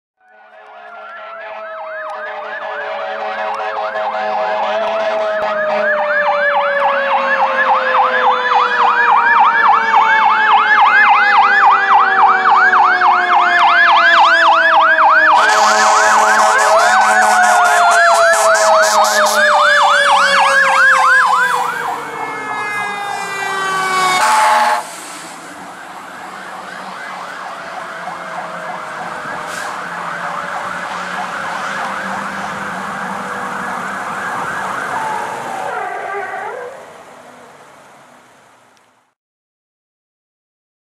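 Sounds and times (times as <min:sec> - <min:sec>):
electronic siren yelping: 0:00.2 - 0:24.8, 0:25.6 - 0:37.0
horn blasts: 0:00.3 - 0:06.1, 0:15.3 - 0:25.0.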